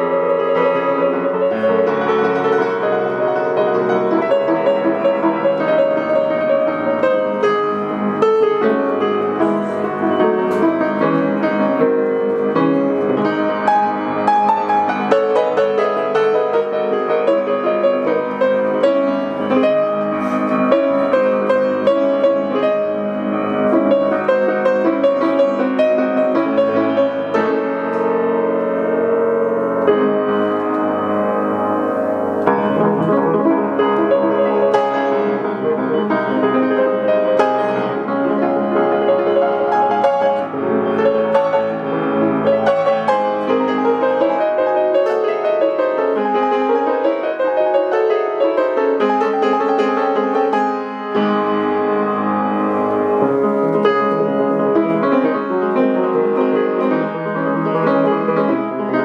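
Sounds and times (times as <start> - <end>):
piano playing: 0.0 - 59.0.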